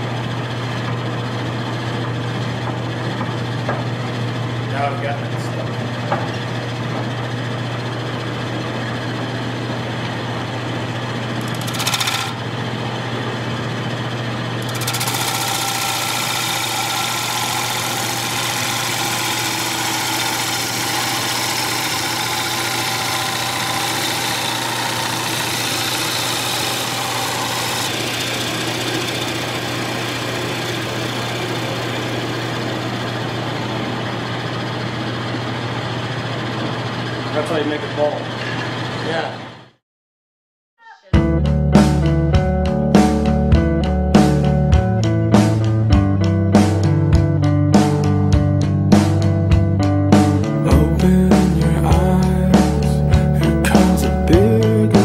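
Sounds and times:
lathe motor hum: 0:00.0 - 0:39.3
gouge cutting spinning wood: 0:07.8 - 0:39.0, 0:50.8 - 0:55.0.

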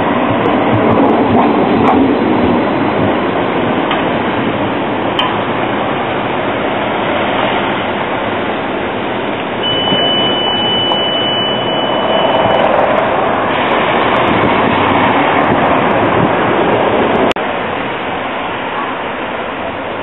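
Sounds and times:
city traffic noise: 0:00.0 - 0:20.0
tram creeping and slowing: 0:00.0 - 0:20.0
steady high-pitched tone: 0:02.7 - 0:15.1.

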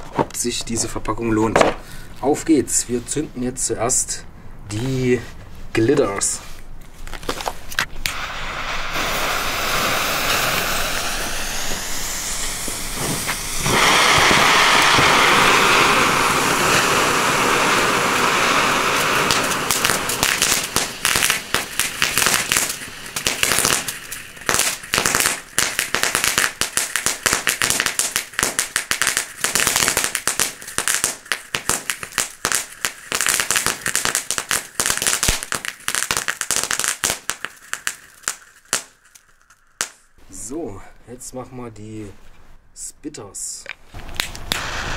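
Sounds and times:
fireworks crackling: 0:00.0 - 0:42.4, 0:43.6 - 0:44.9
fireworks fountain hissing: 0:07.2 - 0:40.5, 0:43.9 - 0:44.9.

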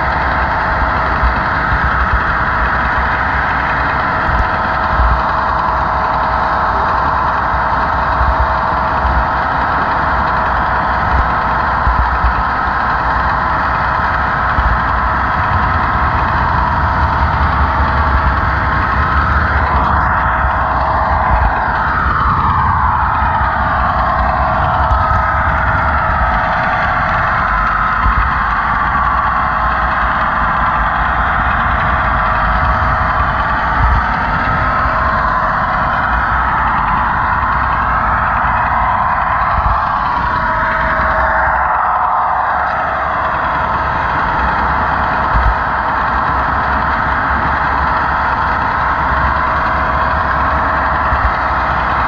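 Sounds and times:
model train motor hum: 0:00.0 - 0:52.0
model train wheels rumbling on rail: 0:00.1 - 0:52.0.

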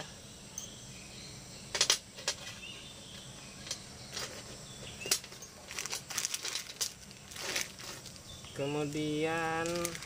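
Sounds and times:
metal parts clicking and clinking: 0:01.7 - 0:02.6, 0:03.6 - 0:08.2
plastic bag rustle: 0:04.1 - 0:10.0.

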